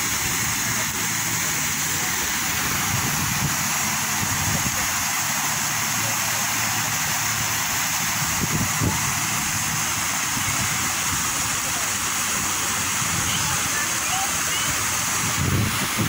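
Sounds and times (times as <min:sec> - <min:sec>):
fountain water splashing: 0:00.0 - 0:16.0
low water rumble: 0:00.0 - 0:16.0.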